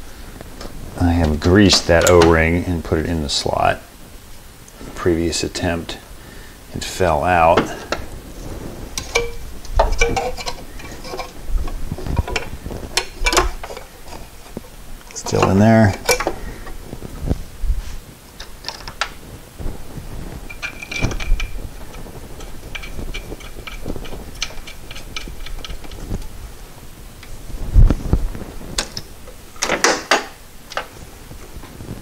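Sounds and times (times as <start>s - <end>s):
metal clicks and clinks: 9.0s - 11.4s, 20.5s - 26.0s.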